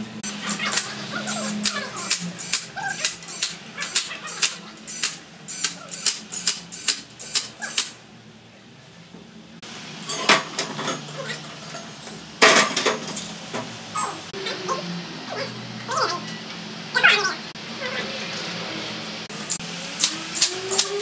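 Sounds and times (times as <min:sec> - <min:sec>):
sharp metallic clicks: 0:01.6 - 0:08.0.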